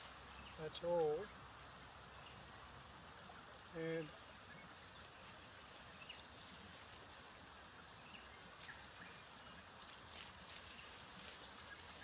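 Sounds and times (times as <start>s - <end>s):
dry stems crackling: 8.6s - 12.0s.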